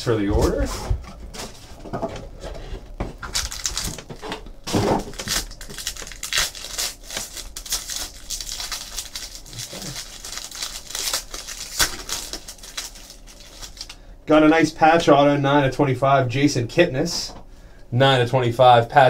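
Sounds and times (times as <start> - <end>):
foil pack crinkling and rustling: 3.1 - 14.0.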